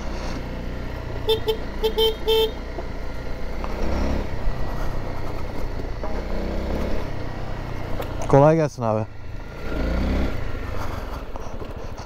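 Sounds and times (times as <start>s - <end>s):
motorcycle engine running: 0.0s - 12.0s
horn short toots: 1.3s - 2.6s.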